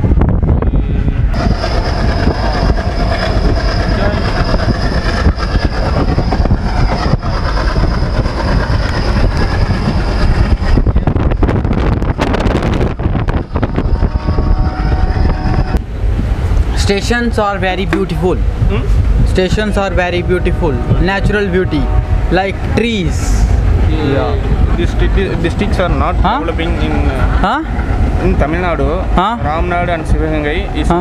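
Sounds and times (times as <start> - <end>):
rushing air: 0.0 - 30.8
train wheels rumbling on rails: 0.0 - 31.0
thin high whine: 0.6 - 15.8.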